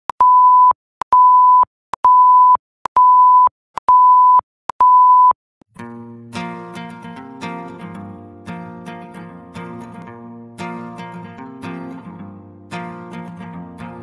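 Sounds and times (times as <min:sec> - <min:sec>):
high countdown beeps: 0:00.2 - 0:05.4
music: 0:05.7 - 0:14.0.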